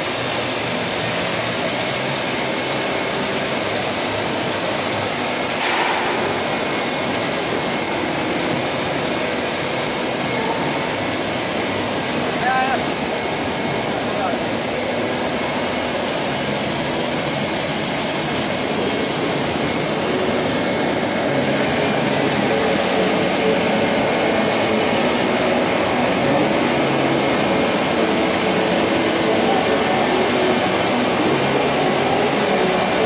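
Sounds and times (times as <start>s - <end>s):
water coolant spray hiss: 0.0s - 33.0s.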